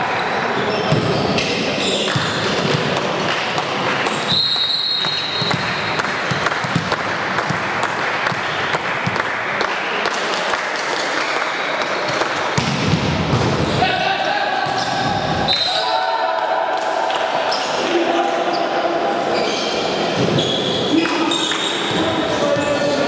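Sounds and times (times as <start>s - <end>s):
crowd chatter: 0.0s - 23.0s
volleyball bouncing on floor: 2.1s - 9.3s, 12.1s - 13.7s
referee's whistle: 4.2s - 5.6s, 15.4s - 15.9s.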